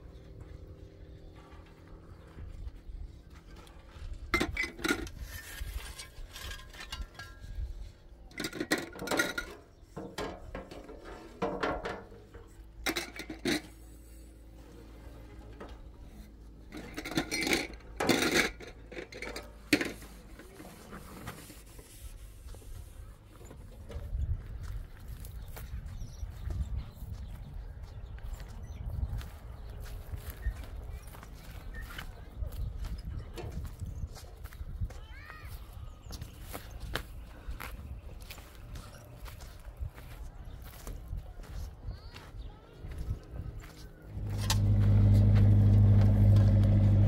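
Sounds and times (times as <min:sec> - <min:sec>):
hard objects scraping and clattering: 0:03.4 - 0:14.0, 0:16.6 - 0:22.0
steady low rumble: 0:44.1 - 0:47.0.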